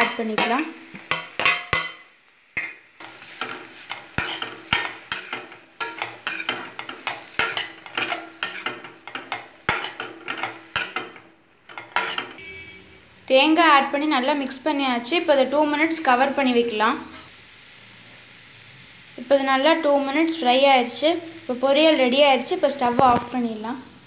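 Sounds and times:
spatula scraping metal pan: 0:02.6 - 0:12.9.

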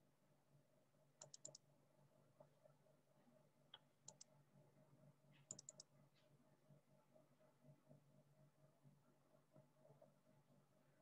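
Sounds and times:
faint clicks: 0:01.2 - 0:01.6, 0:03.7 - 0:04.3, 0:05.4 - 0:05.9.

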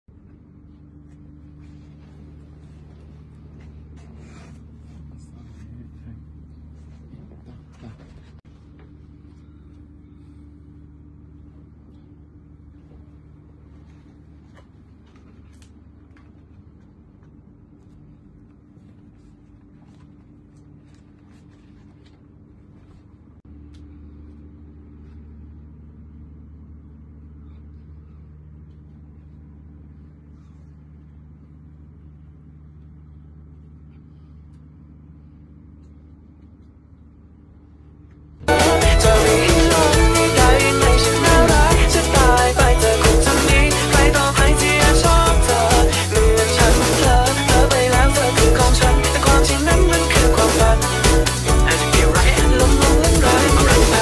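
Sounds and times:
steady low hum: 0:00.1 - 0:54.0
paper and bedding rustling: 0:17.7 - 0:23.4.

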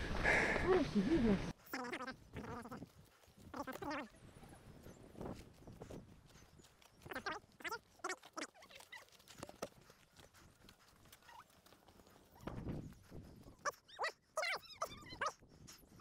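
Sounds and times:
high-pitched animal calls: 0:01.6 - 0:16.0.

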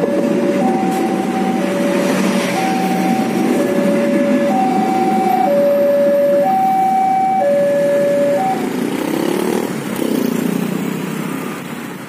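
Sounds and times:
level crossing alarm two tones: 0:00.0 - 0:08.8
train rumbling: 0:00.0 - 0:10.0
motorcycles pulling away: 0:00.4 - 0:12.0.

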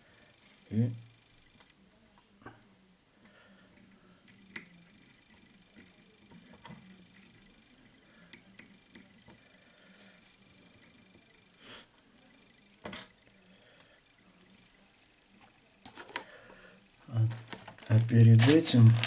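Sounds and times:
small clicks and ticks: 0:03.2 - 0:10.0.

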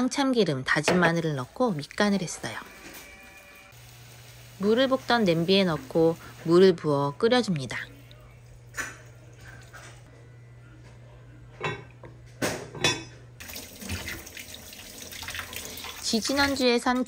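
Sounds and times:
water pouring into pot: 0:01.1 - 0:03.1, 0:13.4 - 0:16.6.

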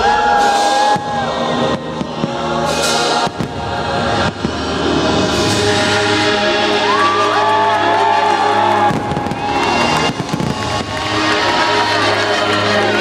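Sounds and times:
choir singing: 0:00.0 - 0:13.0
music soundtrack: 0:00.0 - 0:13.0
firework bangs: 0:00.4 - 0:05.9, 0:08.7 - 0:12.6.

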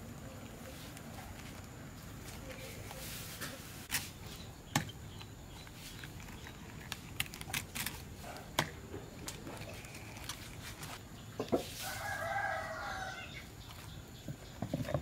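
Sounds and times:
cabbage leaves snapping: 0:05.6 - 0:11.0.

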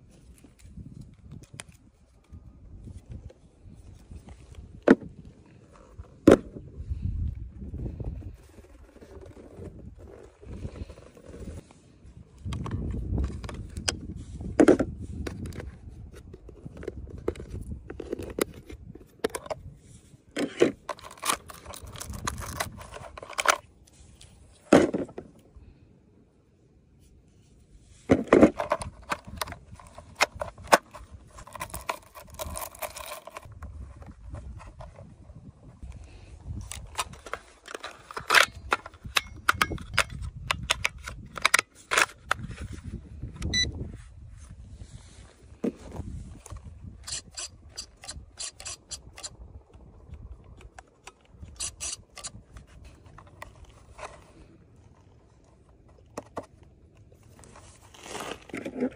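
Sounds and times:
plastic clicks and scrapes: 0:12.4 - 0:19.7, 0:20.3 - 0:25.4, 0:28.0 - 0:35.1, 0:36.6 - 0:43.6, 0:46.4 - 0:58.9.

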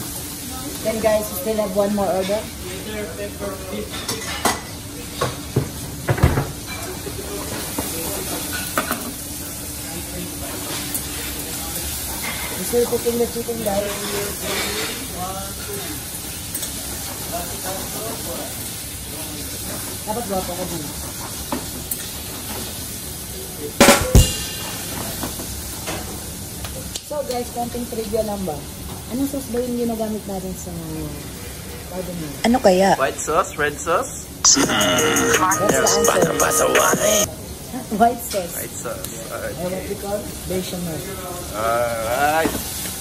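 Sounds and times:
chicken sizzling in a pan: 0:06.8 - 0:25.7, 0:40.0 - 0:43.0
spatula knocking metal pan: 0:23.8 - 0:25.3.

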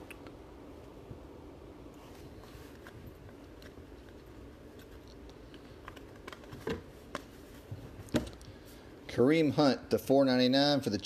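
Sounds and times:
low room hum: 0:00.0 - 0:11.0
cards clicking and snapping: 0:02.8 - 0:07.3.

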